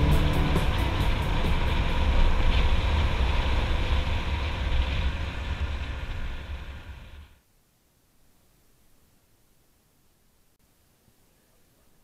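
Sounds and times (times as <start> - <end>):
motorcycle engine cruising: 0.0 - 6.9
wind rushing over microphone: 0.0 - 7.4.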